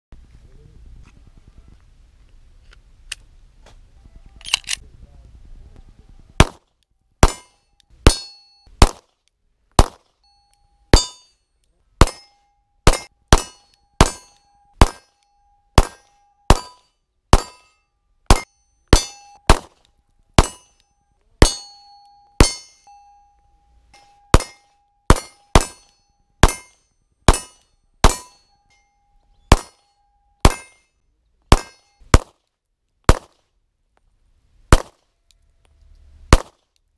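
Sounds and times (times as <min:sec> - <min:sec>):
pistol shots: 0:06.4 - 0:09.1, 0:09.8 - 0:10.1, 0:12.9 - 0:15.1, 0:15.8 - 0:17.6, 0:18.3 - 0:19.8, 0:20.4 - 0:20.6, 0:24.3 - 0:26.7, 0:29.5 - 0:29.8, 0:31.5 - 0:32.4, 0:33.1 - 0:33.4, 0:34.7 - 0:35.0, 0:36.3 - 0:36.6.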